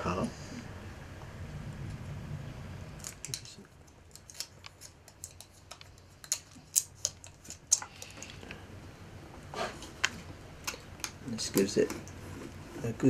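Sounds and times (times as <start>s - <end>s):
foil tape crinkling: 3.0s - 8.4s.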